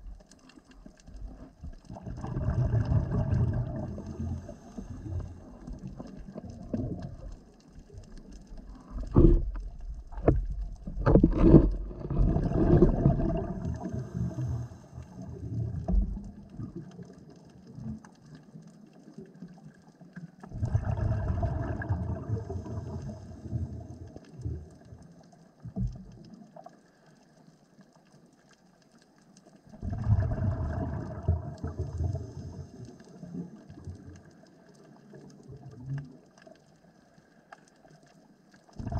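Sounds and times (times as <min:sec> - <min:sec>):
underwater bubbling: 0:00.0 - 0:38.9
sharp knocks underwater: 0:09.0 - 0:13.6.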